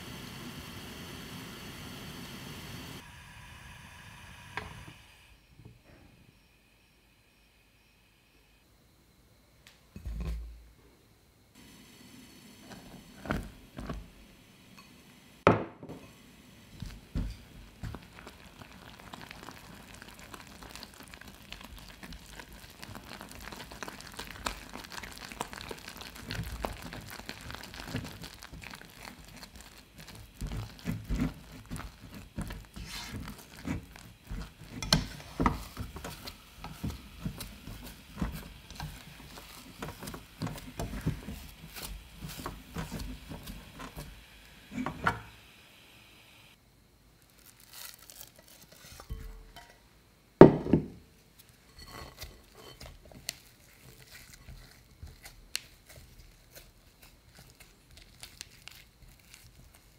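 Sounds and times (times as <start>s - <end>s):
dough squishing: 16.7s - 45.0s, 51.4s - 59.9s
spatula scraping and knocking on pan: 16.8s - 18.3s, 30.0s - 45.3s.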